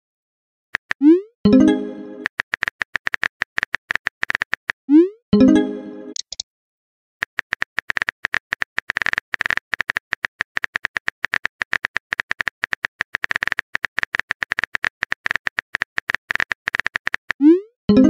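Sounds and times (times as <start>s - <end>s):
keyboard typing clicks: 6.1s - 6.4s.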